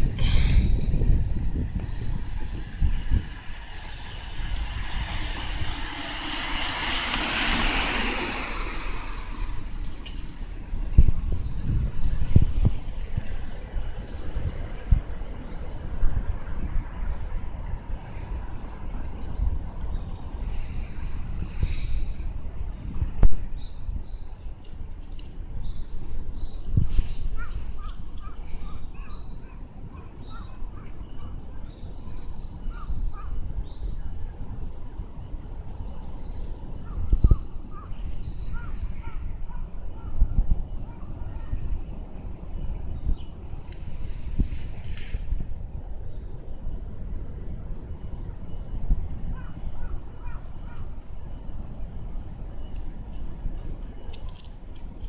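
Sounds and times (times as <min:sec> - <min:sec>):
aircraft engine passing over: 0:00.0 - 0:10.6
steady low rumble: 0:00.0 - 0:24.3
birds chirping and calling: 0:25.6 - 0:34.1, 0:35.8 - 0:44.2, 0:49.3 - 0:51.6.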